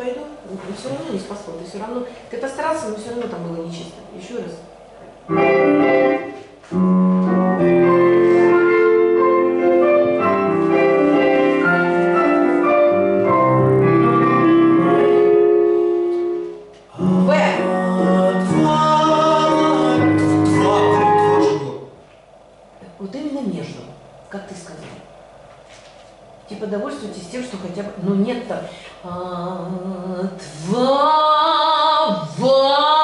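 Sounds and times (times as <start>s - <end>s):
piano accompaniment: 5.3s - 21.9s
man singing: 16.9s - 21.8s.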